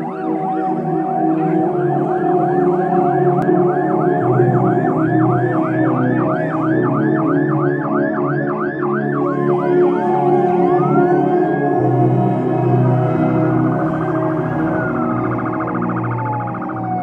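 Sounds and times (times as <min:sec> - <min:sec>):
siren in fast yelp mode: 0:00.0 - 0:17.0
steady lower tones: 0:09.2 - 0:17.0.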